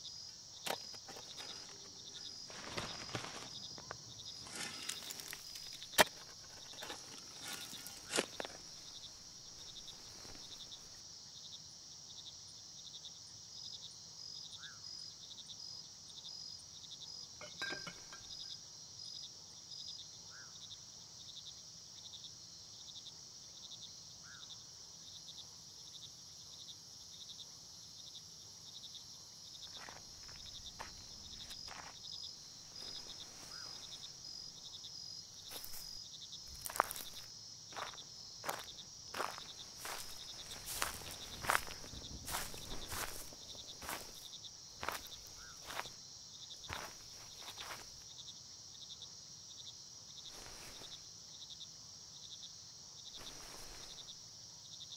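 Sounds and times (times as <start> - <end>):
crickets chirping: 0.0 - 54.9.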